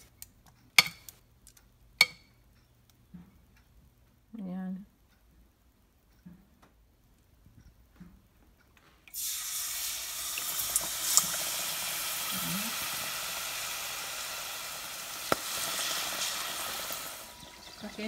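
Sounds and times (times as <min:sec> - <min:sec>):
deep-frying sizzle: 0:09.1 - 0:18.0.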